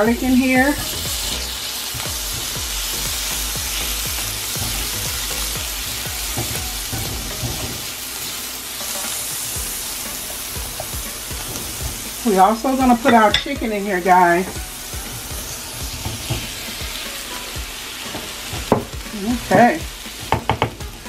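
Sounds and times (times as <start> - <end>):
vegetables sizzling in a frying pan: 0.0 - 21.0
spatula scraping a pan: 6.3 - 20.4.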